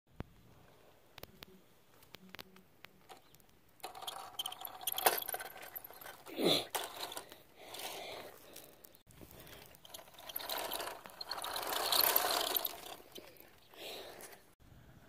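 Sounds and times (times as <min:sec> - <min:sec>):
toy falling: 0:03.1 - 0:07.4
plastic toy wheels scraping concrete: 0:03.1 - 0:14.6.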